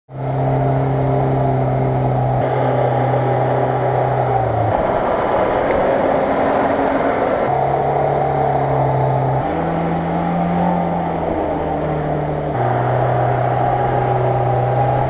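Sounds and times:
suv engines revving: 0.1 - 15.0.

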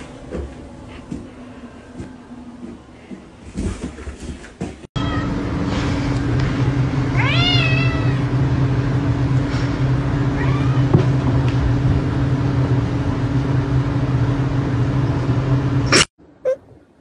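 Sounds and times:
steady low hum: 0.0 - 17.0
cat meowing: 5.0 - 5.4, 7.2 - 8.3, 10.4 - 10.9.

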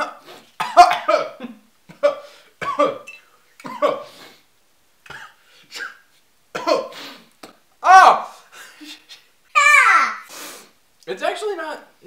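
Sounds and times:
young man coughing: 0.0 - 4.2, 5.1 - 7.0.

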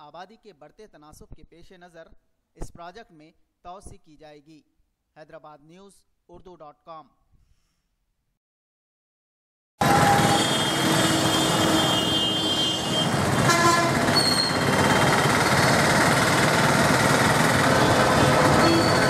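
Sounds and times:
vehicle horns honking: 9.8 - 15.1, 17.7 - 19.0
road traffic din: 9.8 - 19.0.

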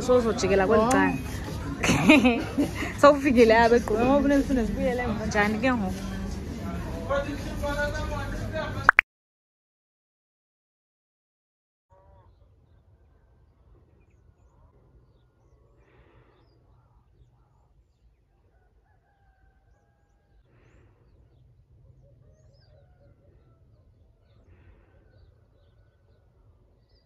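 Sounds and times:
small birds chirping: 13.9 - 18.7.

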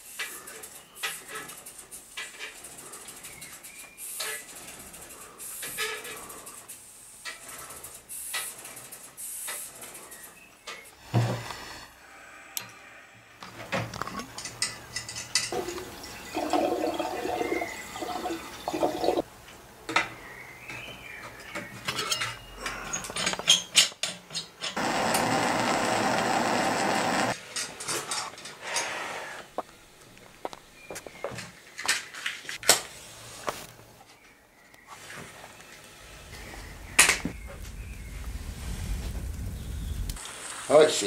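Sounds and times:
small metal clinks and knocks: 13.9 - 15.6
water gurgling: 15.6 - 19.2
steam hissing: 24.8 - 27.4, 36.0 - 41.0.

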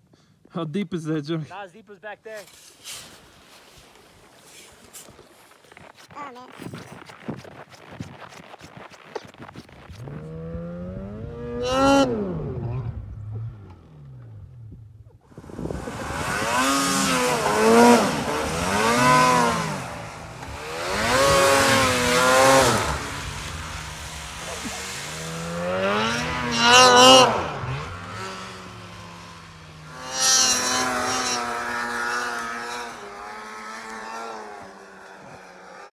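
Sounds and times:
snow hissing: 2.3 - 10.2, 15.4 - 33.2
snowmobile engines revving: 8.2 - 14.2, 15.4 - 35.9.

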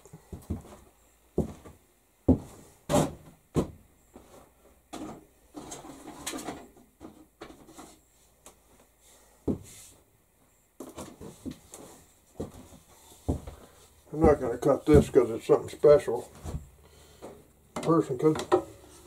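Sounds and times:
sharp knocks and clunks: 14.2 - 15.3, 16.4 - 18.8.

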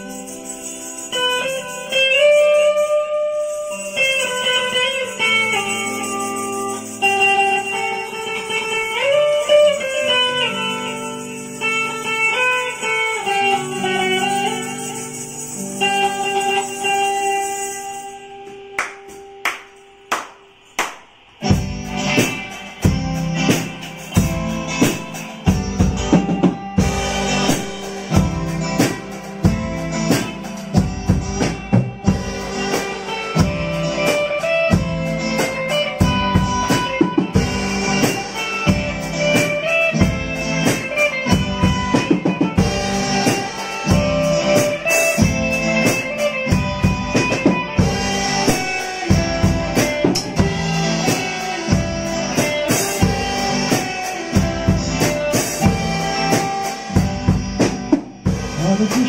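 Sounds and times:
electric guitar melody: 0.0 - 59.0
sharp drum hits: 18.4 - 59.0
full band playing: 21.4 - 59.0.

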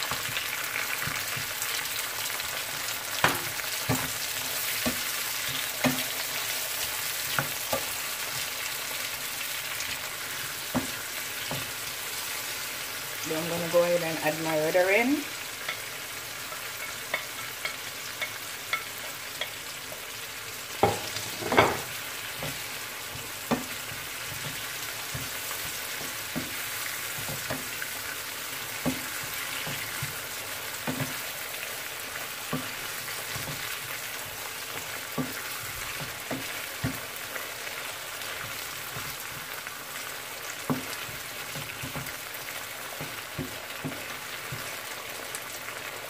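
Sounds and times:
vegetables sizzling in oil: 0.0 - 46.0
wooden spatula knocking on pan: 10.6 - 11.8, 20.8 - 27.8, 28.8 - 30.2, 30.8 - 31.2, 32.5 - 33.7, 35.1 - 37.1, 40.6 - 42.2, 43.0 - 44.8.

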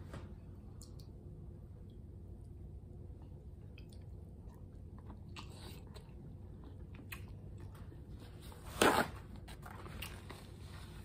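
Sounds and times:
person chewing food: 3.2 - 8.1, 9.6 - 10.7.

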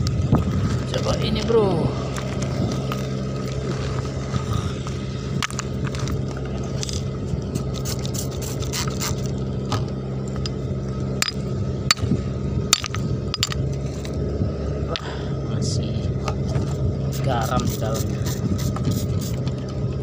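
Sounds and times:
engine droning: 0.0 - 20.0
stones clicking and scraping: 2.0 - 9.4, 12.7 - 14.2.

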